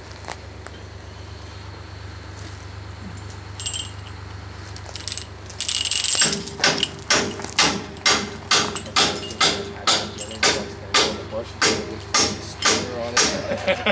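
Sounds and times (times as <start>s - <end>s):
diesel truck engines running: 0.0s - 13.9s
light metallic clinks: 3.1s - 10.8s
sharp knocks: 6.2s - 13.4s.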